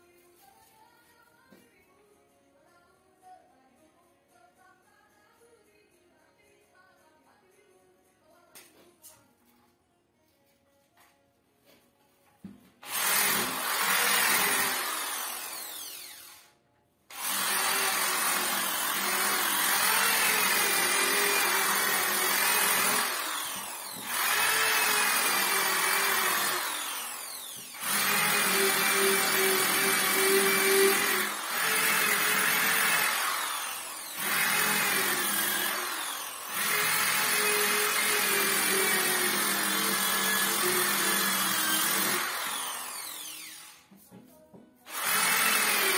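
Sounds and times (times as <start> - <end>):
electric sander sanding wood: 17.2 - 43.7.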